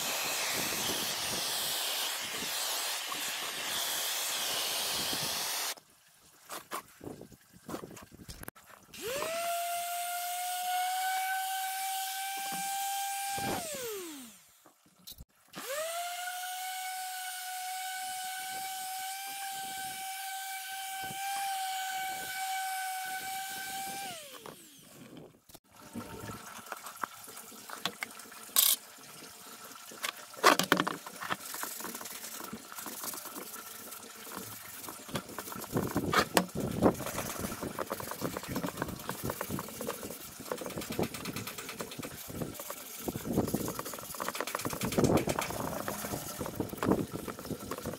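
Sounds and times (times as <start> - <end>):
orbital sander whining: 0.0 - 5.8, 9.0 - 14.6, 15.6 - 25.1.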